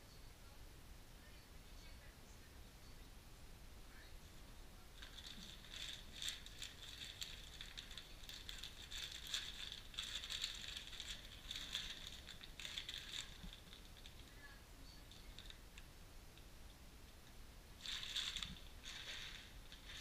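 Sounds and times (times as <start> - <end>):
plastic bags crinkling: 5.0 - 15.6, 17.8 - 20.0.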